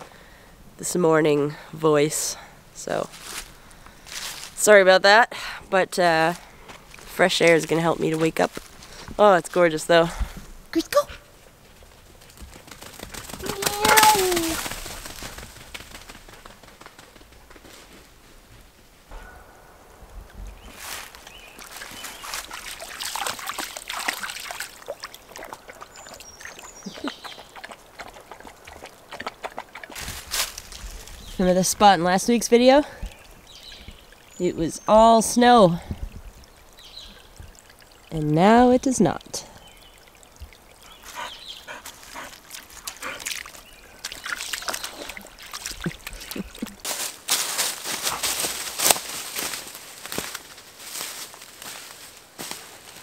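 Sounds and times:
dry leaves and twigs crackling: 2.9 - 4.7, 11.6 - 19.4, 20.2 - 34.0, 41.8 - 53.0
stream trickling: 5.8 - 15.7, 19.1 - 53.0
splashing steps through puddles: 11.8 - 17.1, 20.7 - 34.4, 40.0 - 53.0.

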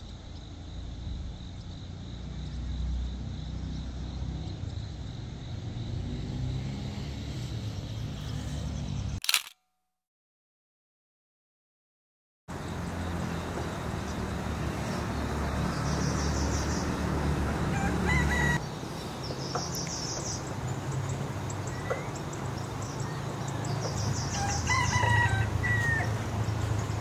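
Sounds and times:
rural background noise: 0.0 - 9.5, 12.5 - 27.0
rooster crowing: 17.6 - 18.6, 24.2 - 26.3.

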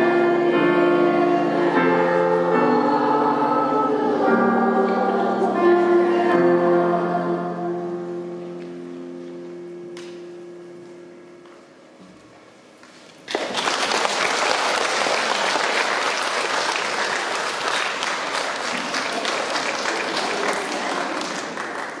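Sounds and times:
faint singing: 0.0 - 8.6
audience applause: 13.3 - 22.0.

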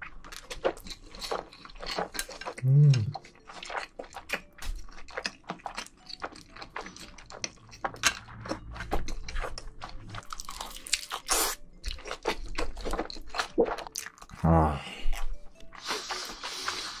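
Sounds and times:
wet chewing and smacking: 0.0 - 14.4
mouth clicks: 2.6 - 3.2.

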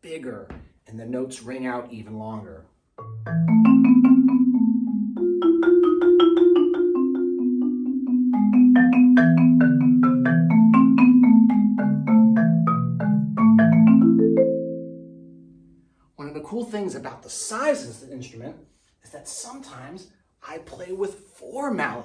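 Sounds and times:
marimba notes ringing: 3.0 - 15.8.

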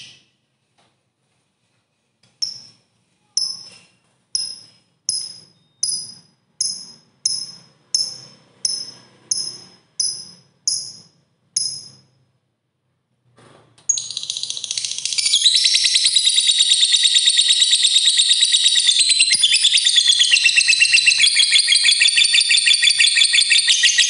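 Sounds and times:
bird chirping sharply: 4.4 - 12.0, 13.9 - 24.0.

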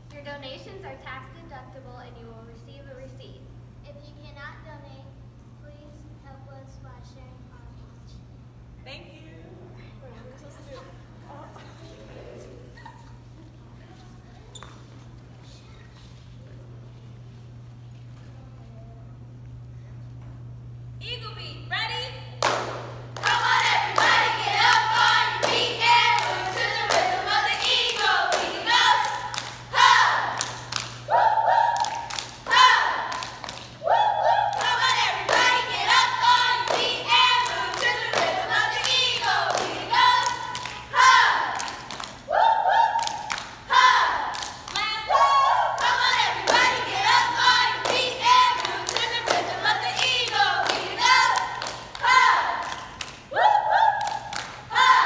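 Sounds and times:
group clapping: 22.4 - 55.0
girls chanting a cheer: 23.1 - 55.0.

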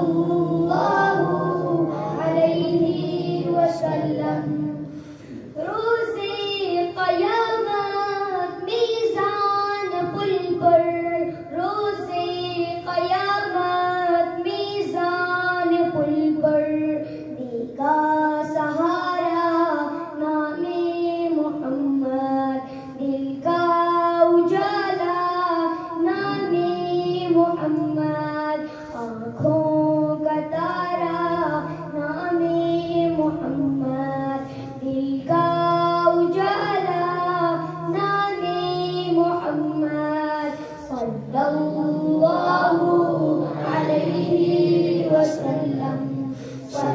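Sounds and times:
boy singing through loudspeaker: 0.0 - 46.9.

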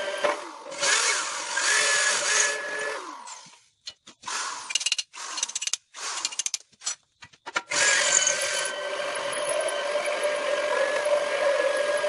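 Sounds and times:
electric drill cutting steel: 0.7 - 3.5, 7.7 - 12.0.

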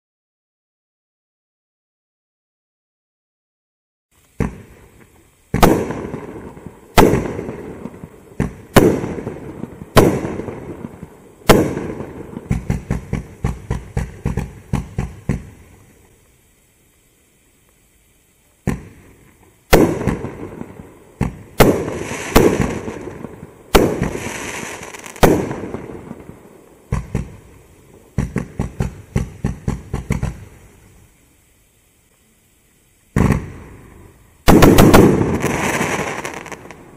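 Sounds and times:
sharp firework pops: 4.2 - 16.2, 18.6 - 30.6, 33.1 - 36.8
fireworks bangs: 4.3 - 16.1, 18.6 - 31.0, 33.1 - 36.9.

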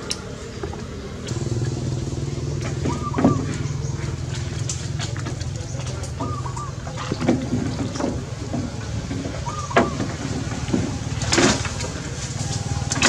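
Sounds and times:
low engine hum: 0.0 - 13.0
sharp knocks and rustles: 0.6 - 13.0
warbling chirps: 1.2 - 4.6.

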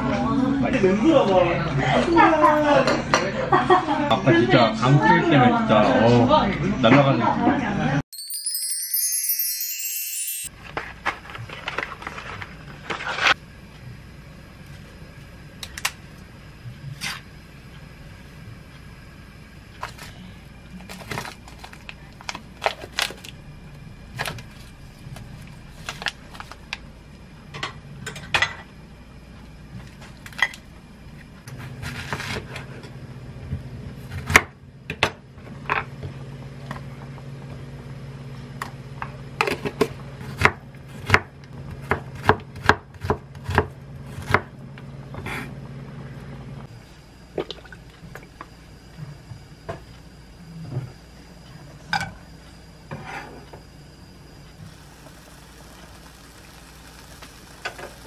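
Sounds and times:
steady low hum: 10.6 - 58.0
knife slicing onion on board: 31.6 - 32.6, 39.4 - 44.5.

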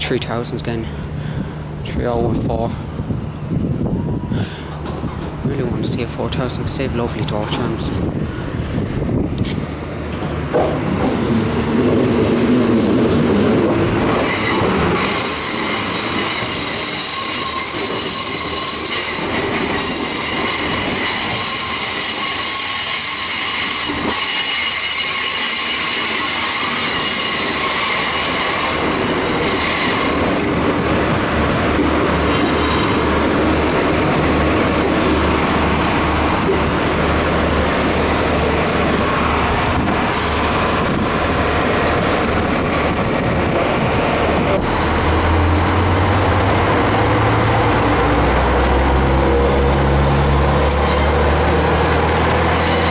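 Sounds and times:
diesel train running in: 0.0 - 52.9
high-pitched squeal: 13.7 - 30.6, 44.4 - 52.9.

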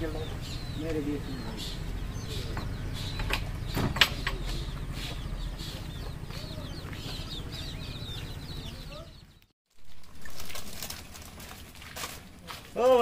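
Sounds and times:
chickens clucking: 0.0 - 9.4
small birds chirping: 0.0 - 9.6.

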